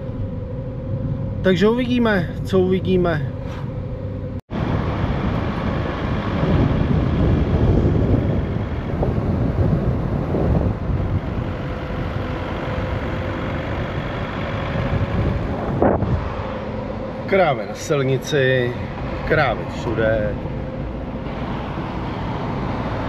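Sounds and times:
car engine and road noise: 0:00.0 - 0:23.0
wind on microphone: 0:04.5 - 0:16.5.

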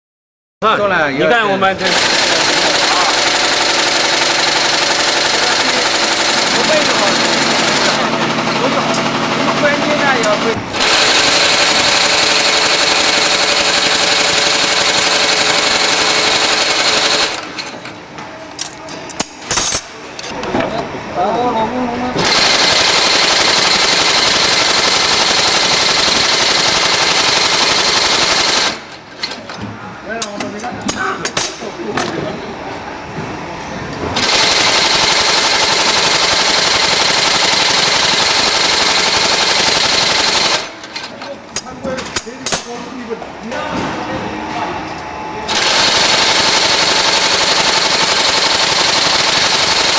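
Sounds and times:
stitching machine running: 0:01.8 - 0:17.9, 0:22.2 - 0:29.4, 0:34.2 - 0:41.1, 0:45.5 - 0:49.9.

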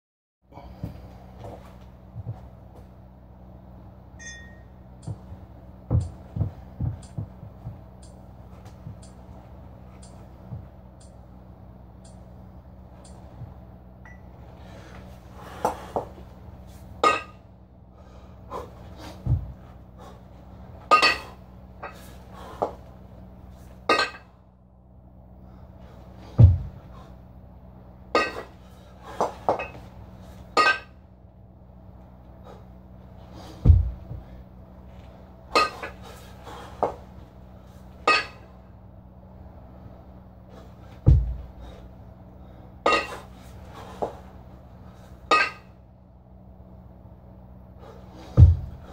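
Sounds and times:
dull low thud: 0:05.1 - 0:08.0, 0:19.2 - 0:19.6, 0:26.3 - 0:26.8, 0:33.6 - 0:34.4, 0:41.0 - 0:41.7, 0:48.3 - 0:48.9
kettlebells clanking together: 0:17.0 - 0:17.4, 0:20.9 - 0:22.0, 0:28.2 - 0:28.5, 0:30.6 - 0:30.9, 0:35.6 - 0:36.0, 0:38.0 - 0:38.5, 0:42.8 - 0:43.3, 0:45.3 - 0:45.7.

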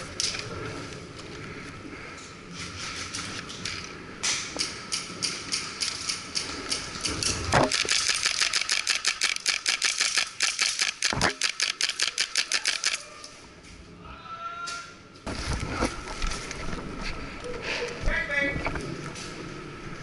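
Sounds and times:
airsoft guns firing: 0:07.6 - 0:13.0.

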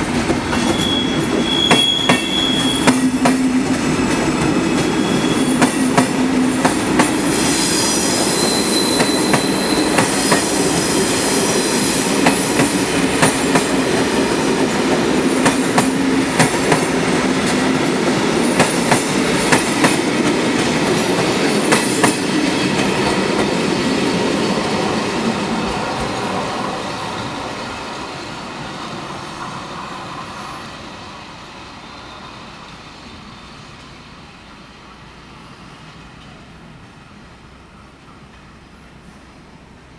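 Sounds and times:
train coaches rumbling past: 0:00.0 - 0:39.9
wheel squeal: 0:00.5 - 0:03.1, 0:04.7 - 0:05.8, 0:07.4 - 0:10.4.

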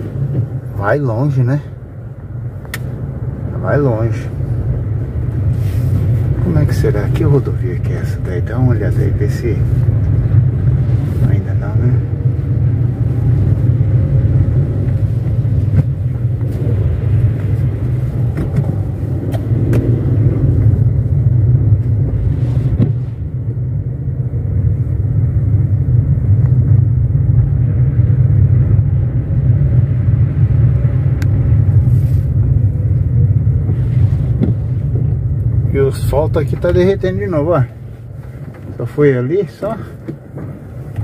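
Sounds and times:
car engine and tyres rumbling: 0:00.0 - 0:41.0
road hiss: 0:05.4 - 0:06.9, 0:31.7 - 0:32.6.

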